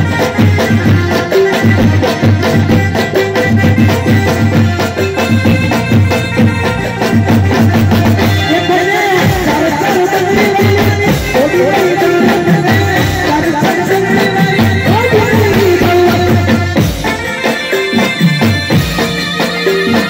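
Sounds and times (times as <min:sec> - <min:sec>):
keyboard and drums: 0:00.0 - 0:20.0
man singing: 0:08.2 - 0:16.8.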